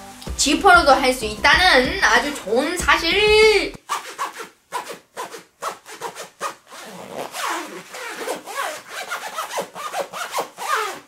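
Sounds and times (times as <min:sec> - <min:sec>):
zipper rasping up and down: 0:03.4 - 0:11.0.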